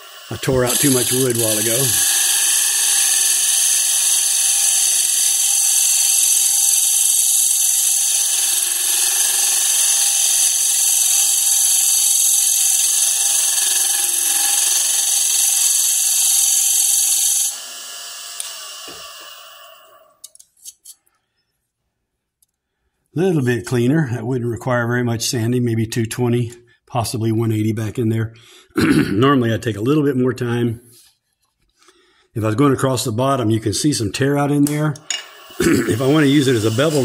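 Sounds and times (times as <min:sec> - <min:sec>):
lathe whine: 0:00.0 - 0:20.0, 0:35.1 - 0:37.0
tool cutting wood hiss: 0:00.0 - 0:21.0, 0:34.6 - 0:37.0.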